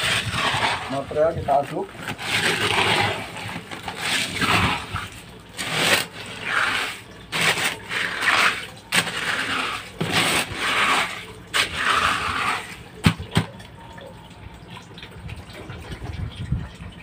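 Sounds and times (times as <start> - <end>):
stick stirring wet slurry: 0.0 - 13.6.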